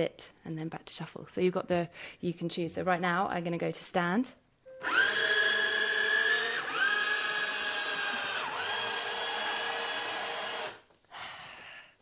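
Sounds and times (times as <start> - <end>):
electric leg motors whining: 4.8 - 10.8.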